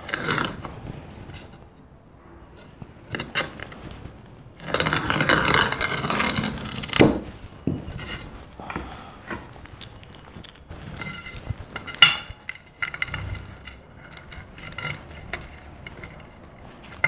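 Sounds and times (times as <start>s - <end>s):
glass cutter scraping: 4.6s - 9.9s.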